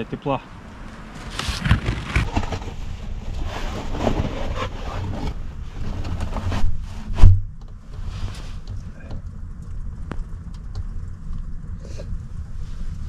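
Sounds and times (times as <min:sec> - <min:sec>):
heavy thump: 0:07.0 - 0:07.6.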